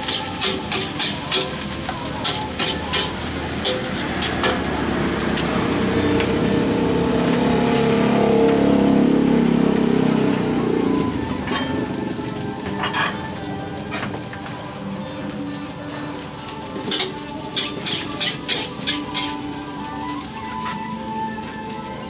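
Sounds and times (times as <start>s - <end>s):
metal spatula clanking on wok: 0.0s - 4.7s, 11.5s - 11.8s, 12.7s - 13.2s, 16.9s - 19.4s
rice sizzling in a wok: 0.0s - 22.0s.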